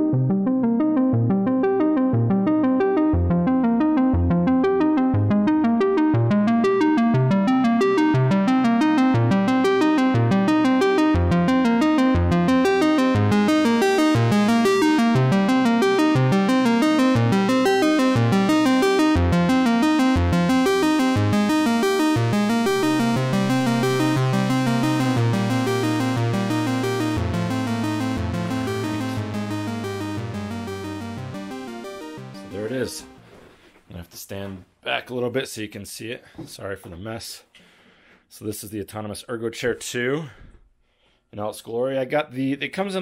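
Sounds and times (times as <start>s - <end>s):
synthesizer music with steady beat: 0.0s - 33.4s.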